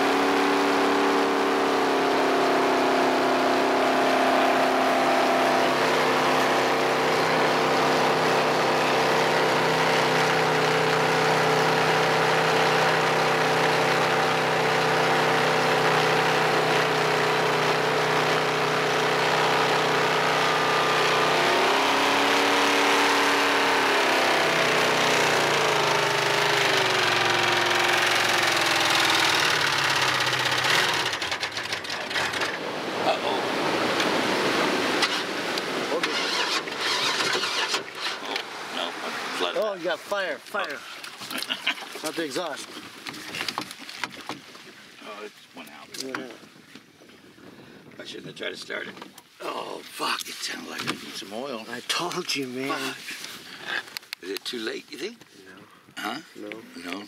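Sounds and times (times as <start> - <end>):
jet boat engine running: 0.0 - 40.4.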